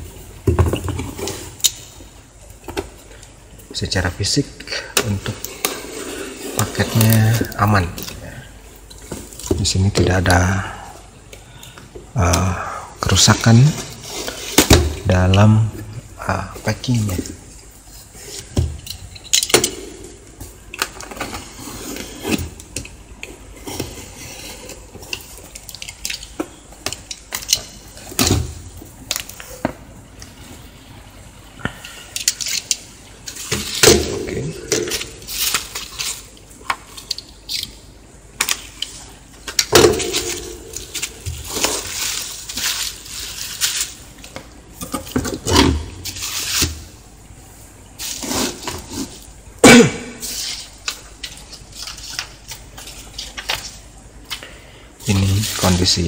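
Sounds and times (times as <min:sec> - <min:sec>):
bubble wrap crinkling: 0:32.2 - 0:44.8, 0:45.4 - 0:49.4, 0:50.2 - 0:54.4.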